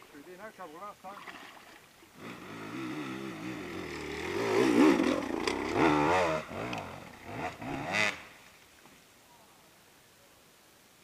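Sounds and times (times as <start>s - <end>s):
dirt bike engine revving: 2.2s - 8.4s.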